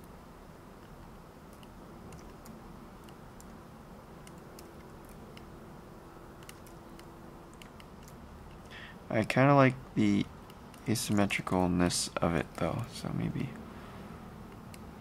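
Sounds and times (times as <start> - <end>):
low steady hum: 0.0 - 15.0
mouse and keyboard clicks: 0.8 - 3.6, 4.2 - 5.5, 6.4 - 8.7.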